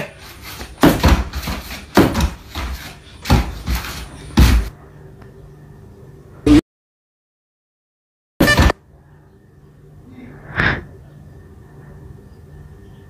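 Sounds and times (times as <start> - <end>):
thumps and bangs on door: 0.8 - 4.7
faint steady hum: 2.6 - 6.6, 8.7 - 13.0.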